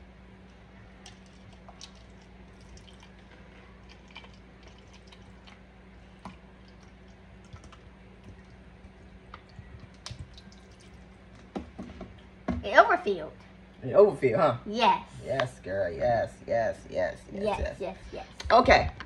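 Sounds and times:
low hum: 0:00.0 - 0:19.0
small ticks and drips: 0:01.0 - 0:05.6, 0:06.2 - 0:11.5
water pouring into cup: 0:01.0 - 0:05.6, 0:06.2 - 0:11.2.

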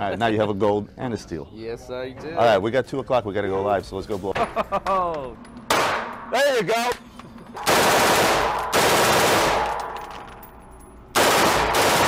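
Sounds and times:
gunshots echoing indoors: 0:05.7 - 0:06.4, 0:07.6 - 0:12.0.

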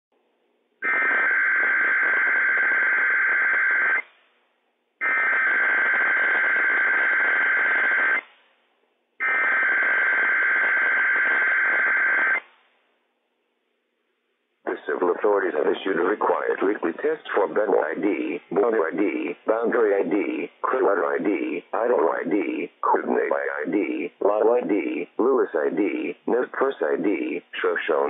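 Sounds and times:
radio hiss: 0:14.7 - 0:28.0.

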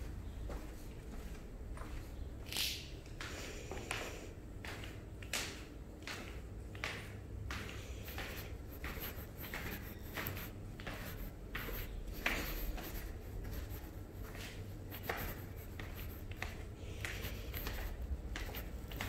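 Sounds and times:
footsteps on concrete stairs: 0:03.2 - 0:19.0.

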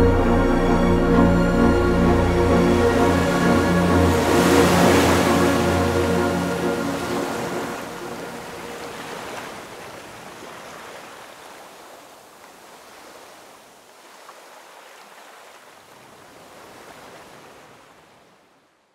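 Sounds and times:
music track: 0:00.0 - 0:09.3
sea waves washing: 0:00.0 - 0:18.0.

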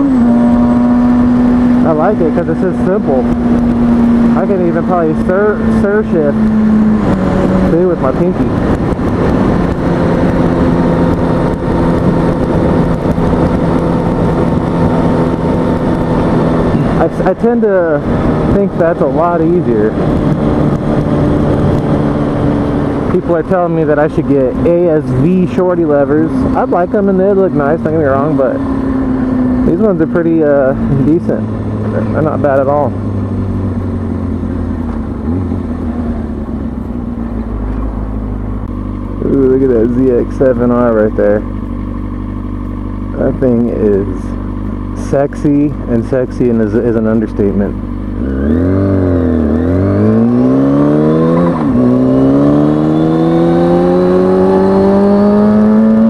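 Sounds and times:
rushing wind noise: 0:00.0 - 0:40.9
motorcycle engine cruising: 0:00.0 - 0:56.0.

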